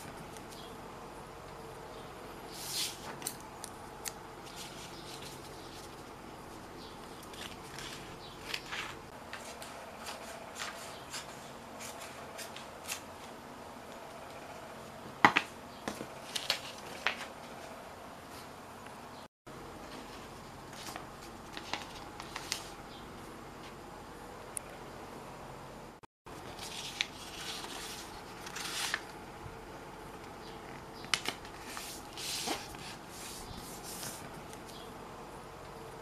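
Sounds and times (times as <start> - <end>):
paper rustling on wooden table: 7.2 - 13.0, 26.4 - 29.1, 31.1 - 34.4.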